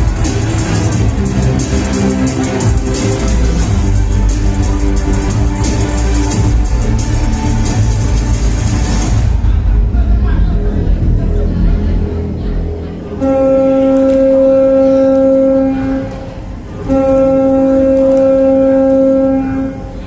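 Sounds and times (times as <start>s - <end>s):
bass-heavy music: 0.0s - 20.0s.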